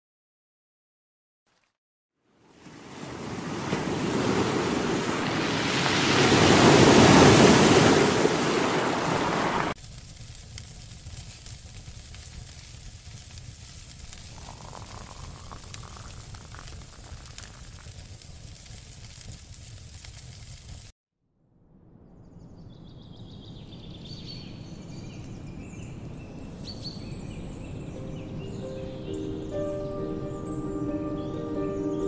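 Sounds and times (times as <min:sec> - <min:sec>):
ocean surf washing over rocks: 0:02.5 - 0:10.3, 0:14.1 - 0:18.2
campfire crackling and popping: 0:09.6 - 0:20.9.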